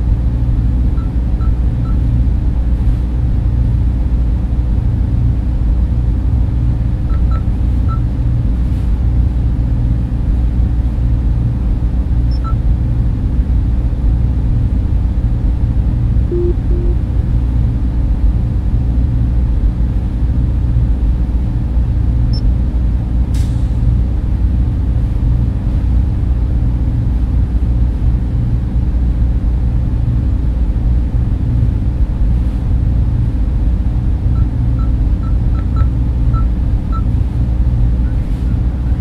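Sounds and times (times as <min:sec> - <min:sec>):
server machines and fans droning: 0:00.0 - 0:39.0
short electronic beeps: 0:07.1 - 0:08.0, 0:16.3 - 0:17.1, 0:34.3 - 0:37.1.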